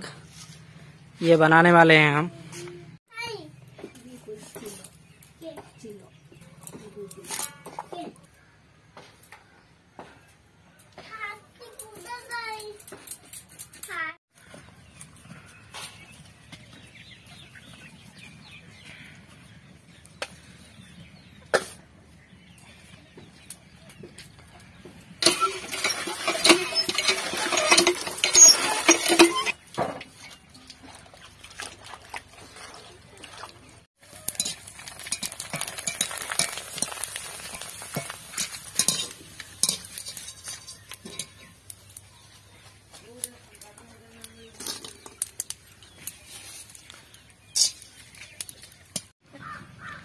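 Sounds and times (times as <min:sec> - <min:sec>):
oil sizzling in wok: 0:25.2 - 0:29.5, 0:34.0 - 0:42.1
water gushing from pump spout: 0:25.2 - 0:29.6.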